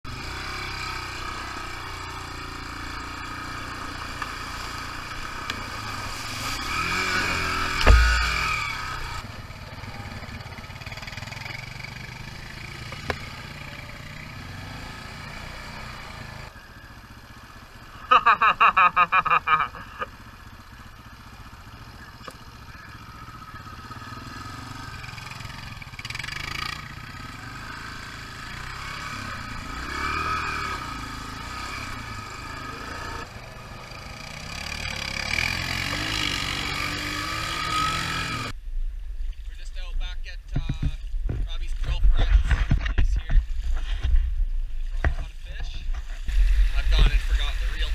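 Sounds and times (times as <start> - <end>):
dirt bike engine revving: 0.1 - 38.6
heavy low thump: 7.7 - 8.7.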